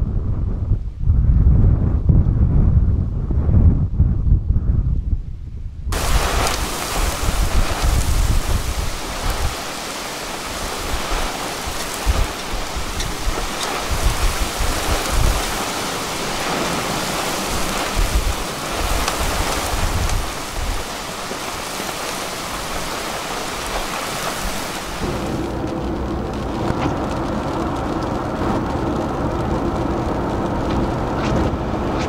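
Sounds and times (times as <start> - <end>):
wind buffeting the microphone: 0.0 - 32.0
heavy rain on pavement: 5.9 - 32.0
car driving hum: 25.0 - 32.0.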